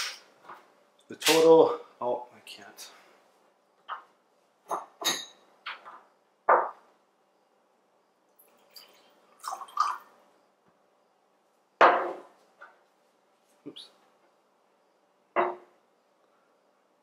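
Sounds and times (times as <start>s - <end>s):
bottle and glass knocking on table: 4.7s - 6.8s, 11.8s - 12.3s, 15.3s - 15.7s
water pouring into a glass: 8.4s - 10.1s.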